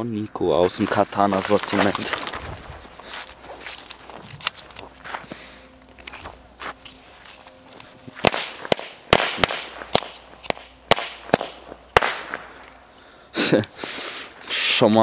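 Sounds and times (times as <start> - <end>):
firecrackers banging: 8.0 - 14.5.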